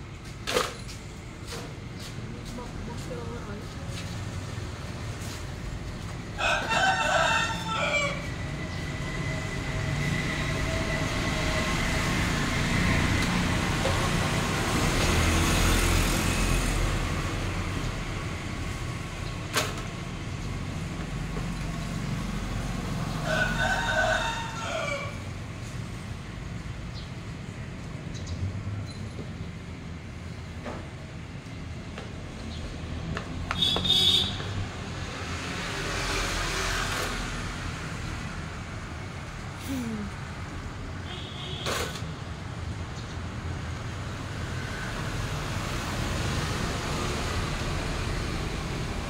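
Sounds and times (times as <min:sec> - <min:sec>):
rooster crowing: 0:06.4 - 0:08.5, 0:23.0 - 0:25.4.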